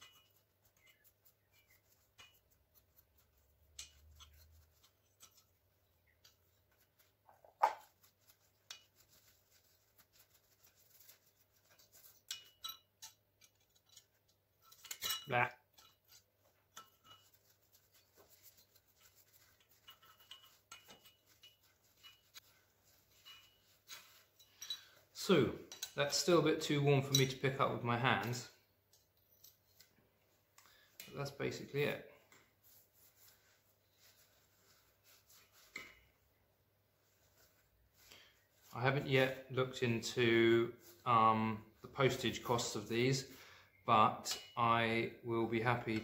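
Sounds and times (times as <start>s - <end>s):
metal clatter: 18.3s - 22.4s.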